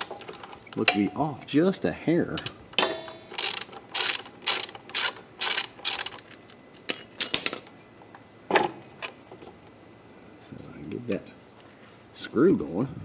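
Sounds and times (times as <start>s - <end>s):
socket ratchet clicking: 2.4s - 7.7s.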